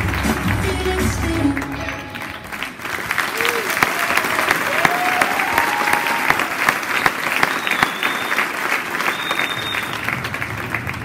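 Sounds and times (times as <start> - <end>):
audience applauding: 0.0 - 11.0
high whistles of approval: 7.3 - 10.1.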